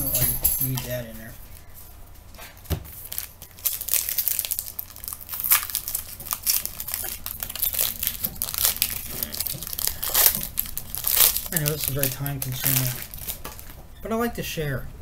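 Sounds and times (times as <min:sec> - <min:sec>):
plastic wrapper crinkling: 0:02.9 - 0:13.8.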